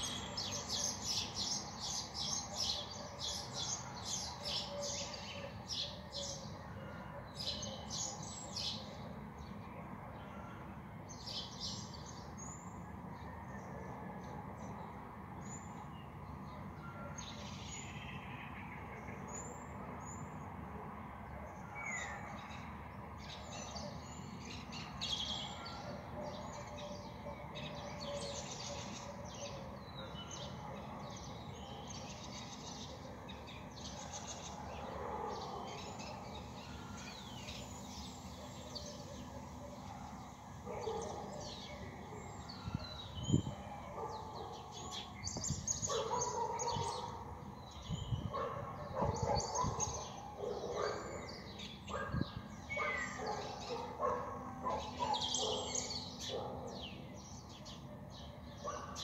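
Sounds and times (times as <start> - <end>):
small birds chirping: 26.1 - 59.0.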